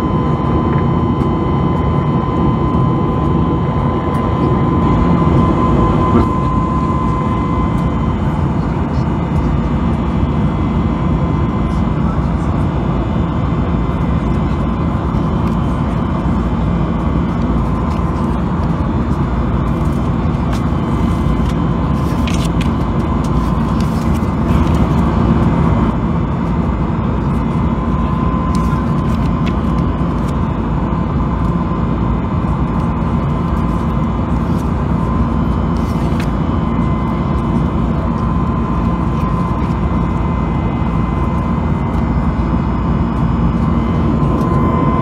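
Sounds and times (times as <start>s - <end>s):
airliner cabin noise: 0.0s - 45.0s
magazine pages rustling: 19.7s - 25.1s, 28.5s - 30.4s, 33.6s - 36.4s.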